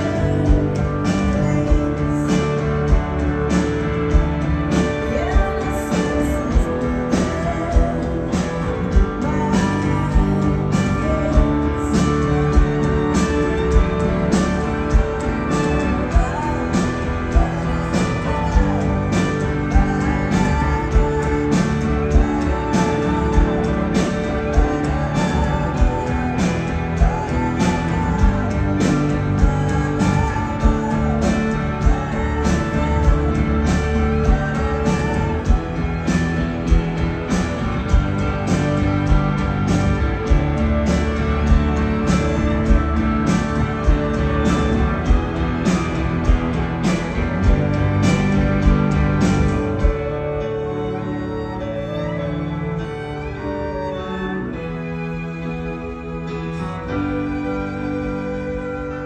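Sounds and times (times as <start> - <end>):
electric guitar and bass: 0.0 - 59.0
violin and cello: 48.6 - 59.0.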